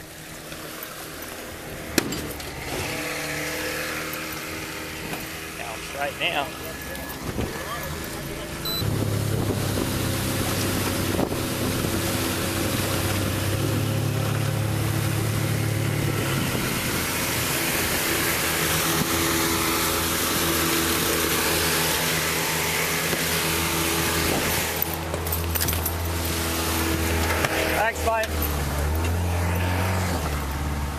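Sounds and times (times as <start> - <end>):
outboard motor running: 0.0 - 30.9
water rushing along hull: 0.0 - 30.9
wind on microphone: 8.8 - 14.0, 14.8 - 19.2.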